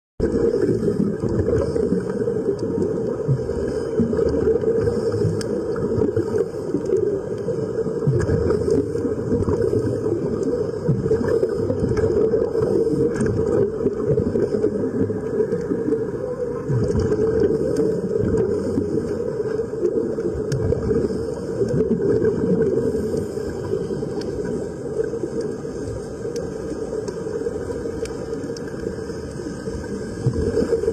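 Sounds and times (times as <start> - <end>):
air bubbling underwater: 0.2 - 23.8.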